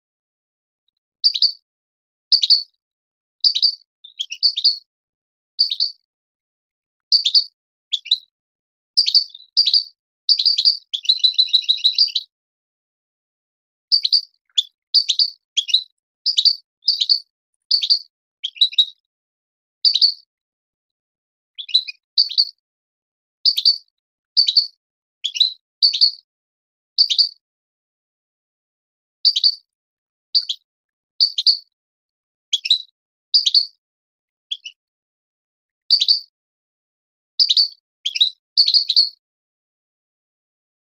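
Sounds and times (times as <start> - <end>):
finch singing: 1.2 - 1.6, 2.3 - 2.8, 3.4 - 4.9, 5.5 - 6.0, 7.0 - 8.3, 9.0 - 12.4, 13.8 - 19.1, 19.8 - 20.3, 21.5 - 22.6, 23.4 - 26.2, 27.0 - 27.4, 29.3 - 29.7, 30.4 - 31.7, 32.5 - 33.8, 34.5 - 34.8, 35.9 - 36.3, 37.4 - 39.2.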